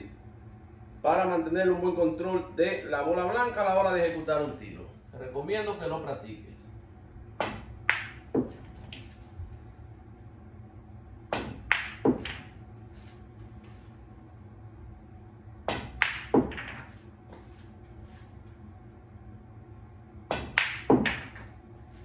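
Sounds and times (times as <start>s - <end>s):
pool balls clacking: 7.4s - 9.2s, 11.3s - 12.6s, 15.7s - 17.5s, 20.3s - 21.5s.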